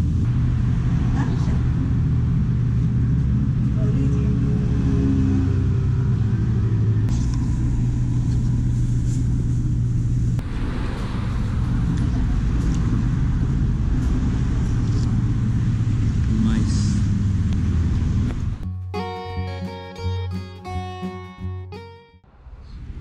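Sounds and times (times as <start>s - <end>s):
low mechanical hum: 0.0s - 18.6s.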